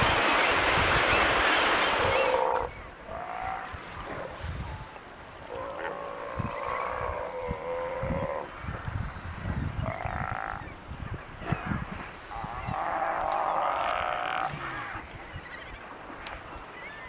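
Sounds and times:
sea lions bellowing: 0:01.8 - 0:04.4.

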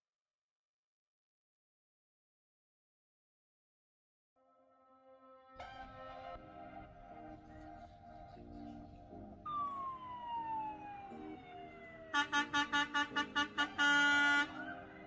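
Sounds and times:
quiet background music: 0:04.4 - 0:15.0
vehicle siren wailing: 0:09.4 - 0:15.0
short horn-like blasts: 0:12.1 - 0:14.7.

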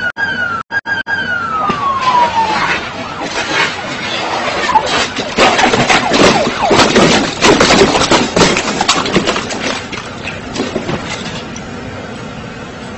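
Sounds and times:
police sirens wailing: 0:00.0 - 0:12.9
rough crackling noise: 0:01.6 - 0:11.7.

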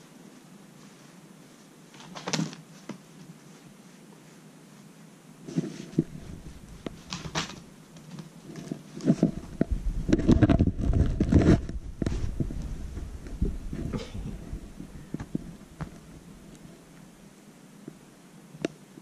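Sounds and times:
bumping and low rumbling: 0:09.2 - 0:16.9.

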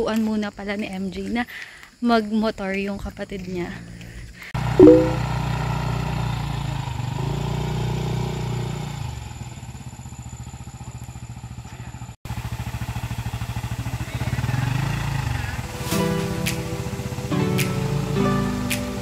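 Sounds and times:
motorcycle engine revving and idling: 0:05.8 - 0:15.7.

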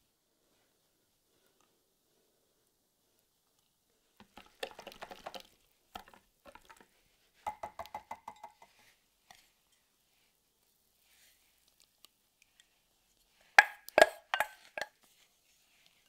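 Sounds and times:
whisk beating in glass jug: 0:04.2 - 0:06.7.

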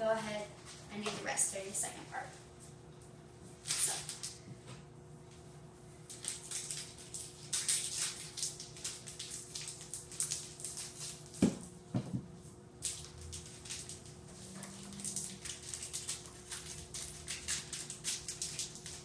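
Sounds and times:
wrapper crinkling and rustling: 0:03.6 - 0:04.4, 0:06.1 - 0:11.6, 0:12.8 - 0:19.0.

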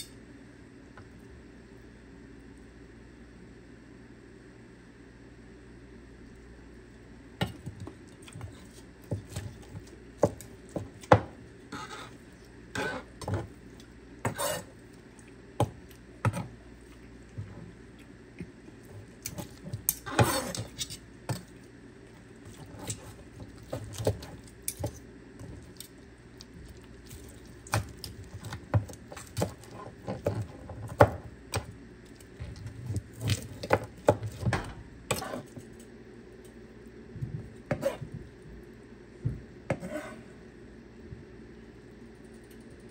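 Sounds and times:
steady low hum: 0:00.0 - 0:42.9.

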